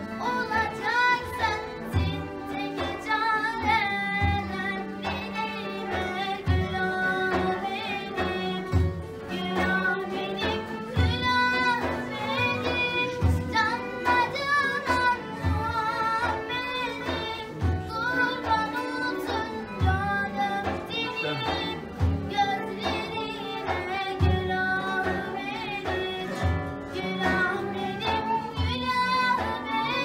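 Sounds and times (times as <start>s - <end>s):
instrumental accompaniment: 0.0s - 30.0s
person singing ornamented melody: 17.0s - 24.2s.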